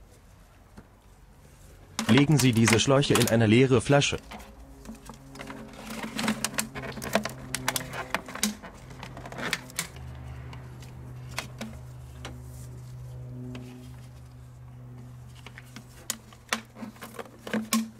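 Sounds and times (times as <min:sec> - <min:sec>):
steady low hum: 0:00.0 - 0:17.9
plastic bottles clicking and crinkling: 0:01.9 - 0:12.4, 0:15.3 - 0:17.9.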